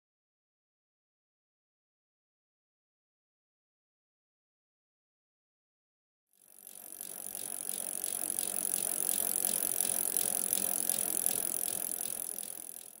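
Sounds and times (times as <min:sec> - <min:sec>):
rhythmic mechanical clicking: 0:06.4 - 0:13.0.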